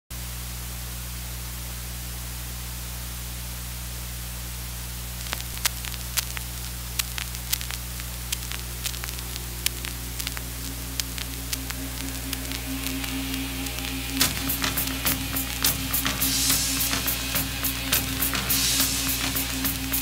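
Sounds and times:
mains hum: 0.1s - 20.0s
turntable playback hiss: 0.2s - 20.0s
stylus clicks and pops: 5.2s - 17.1s.

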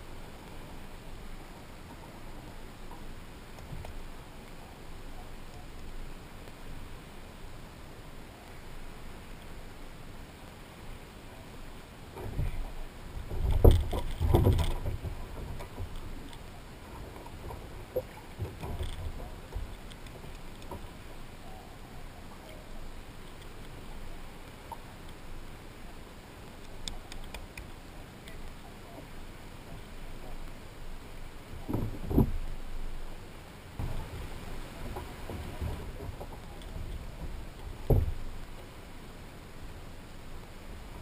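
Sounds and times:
hiss of water around a kayak: 0.0s - 41.0s
faint clicks: 1.8s - 4.7s, 12.2s - 21.6s, 22.3s - 25.4s, 26.4s - 29.1s, 34.8s - 38.8s
heavy knocks against a hull: 31.6s - 32.4s, 37.2s - 38.2s.

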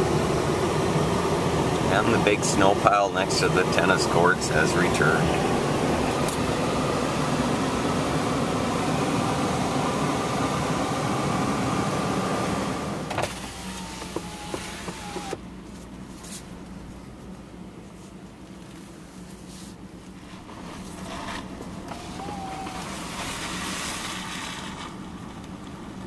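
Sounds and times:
rushing noise in car: 0.0s - 26.0s
power window motor whining: 4.8s - 15.4s, 20.3s - 25.6s.

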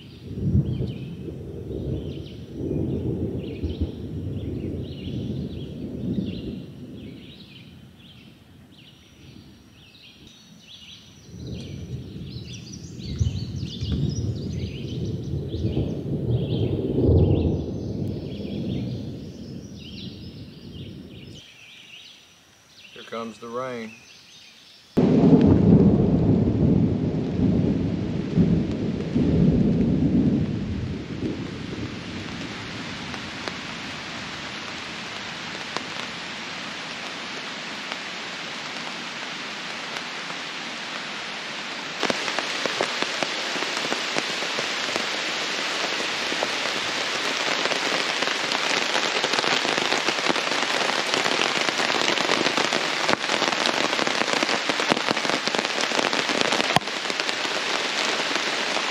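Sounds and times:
thunder rumbling: 0.0s - 9.8s, 10.6s - 21.4s, 25.0s - 37.1s
rain falling on a tarp: 0.0s - 24.0s, 25.0s - 58.9s.

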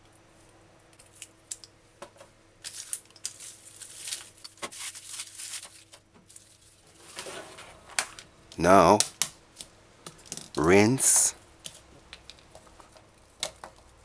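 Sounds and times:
hands sweeping dry onion skins: 2.6s - 7.7s.

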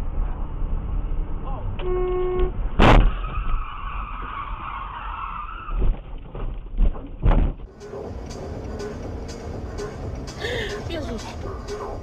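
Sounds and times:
car tyres screeching: 0.2s - 6.5s
car thudding: 1.8s - 7.7s.

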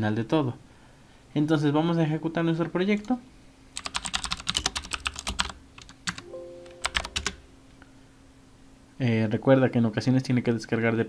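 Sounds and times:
keyboard typing: 3.8s - 7.5s.

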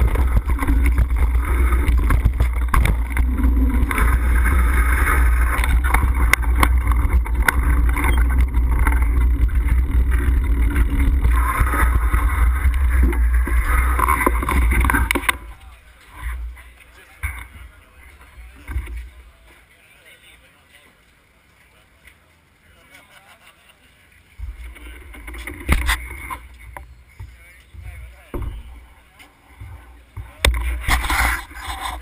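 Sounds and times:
wind buffeting microphone: 0.0s - 15.4s
bike rattling over trail: 0.0s - 19.8s, 24.2s - 32.0s.

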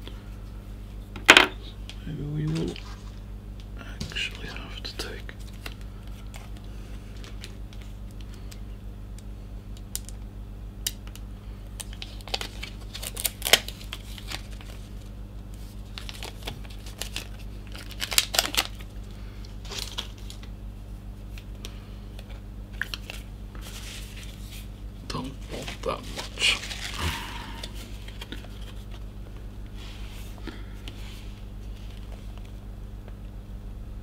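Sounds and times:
steady low hum: 0.0s - 34.0s
paper rustling and crinkling: 5.4s - 8.5s, 11.8s - 19.0s, 19.6s - 20.5s, 22.2s - 24.7s, 25.3s - 29.1s.

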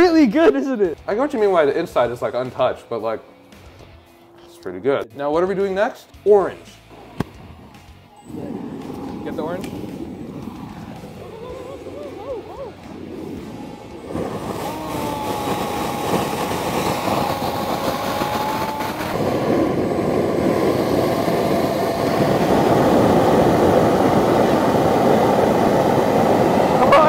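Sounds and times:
thin jet engine whine: 1.0s - 27.0s
jet engine roaring: 6.8s - 27.0s.

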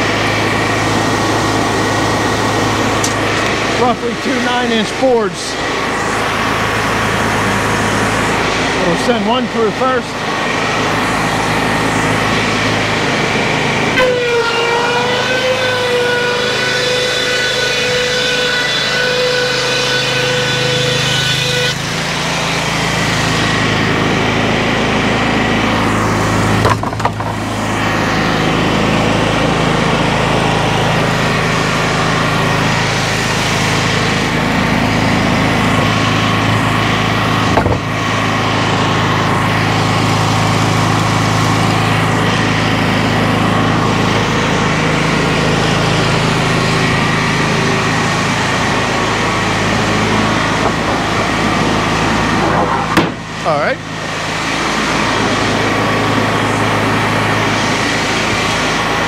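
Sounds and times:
small engine running: 0.0s - 59.0s
saw ripping board: 8.1s - 30.0s, 32.6s - 38.6s, 47.8s - 56.6s.

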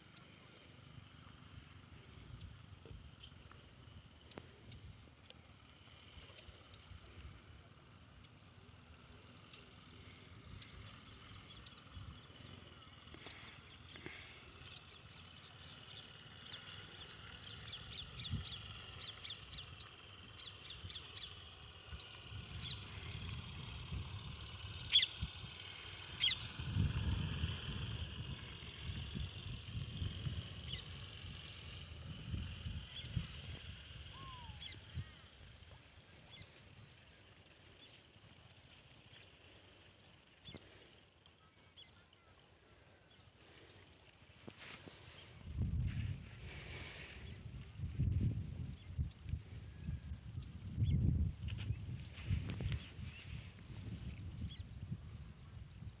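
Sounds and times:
small birds chirping: 0.0s - 56.0s
low rumble: 44.6s - 56.0s.

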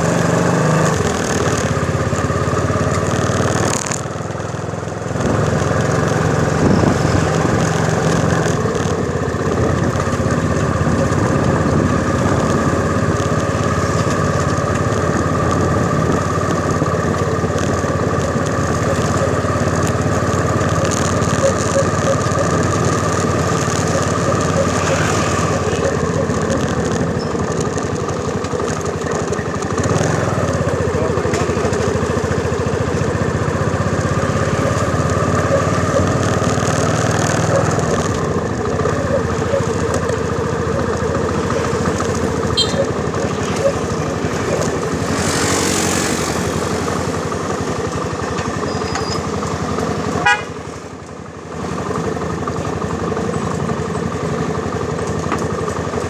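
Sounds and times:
motorcycle engine running: 0.0s - 56.0s
wind rumbling on microphone: 6.4s - 13.8s.

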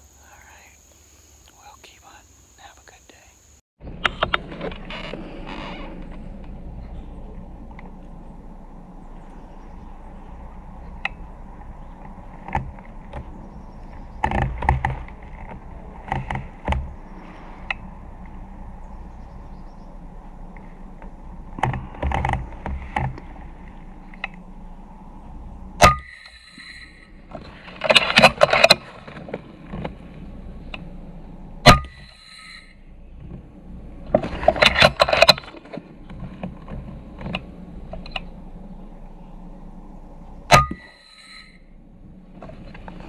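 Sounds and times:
handling rustles and clicks: 27.3s - 30.9s, 34.1s - 38.4s.

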